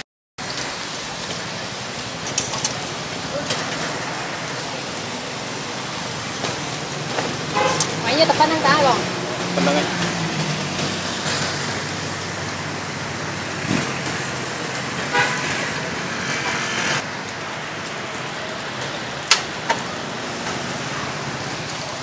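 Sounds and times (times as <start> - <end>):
street traffic: 0.0 - 22.0
vehicle horn tooting: 7.5 - 8.0, 15.1 - 15.8.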